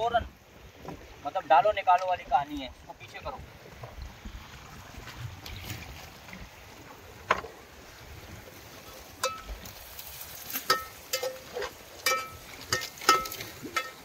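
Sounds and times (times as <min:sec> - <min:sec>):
knocks and clinks of fishing gear: 0:09.2 - 0:14.0.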